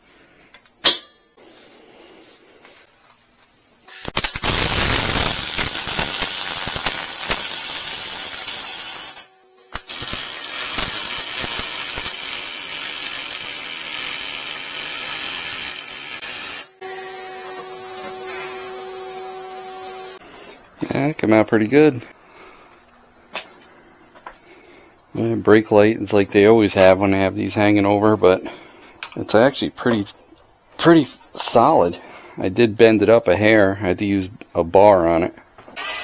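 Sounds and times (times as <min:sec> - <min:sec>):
arc welding crackling hiss: 0:03.9 - 0:16.8.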